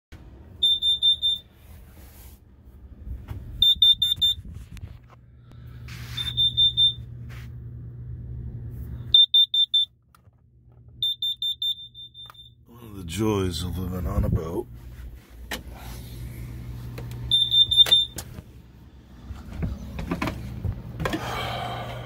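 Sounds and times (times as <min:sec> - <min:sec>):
low steady hum: 0:00.2 - 0:22.0
carbon monoxide alarm beeping: 0:00.6 - 0:01.7, 0:03.6 - 0:04.5, 0:05.8 - 0:07.2, 0:09.1 - 0:10.0, 0:11.0 - 0:12.7, 0:17.2 - 0:18.4.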